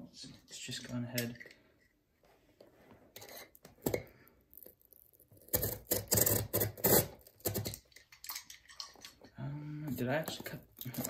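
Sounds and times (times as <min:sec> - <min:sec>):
box cutter slicing cardboard: 0:05.4 - 0:07.7.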